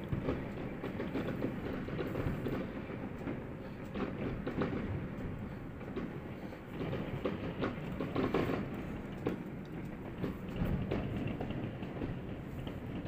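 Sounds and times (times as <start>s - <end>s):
distant fireworks crackling and banging: 0.0s - 13.0s.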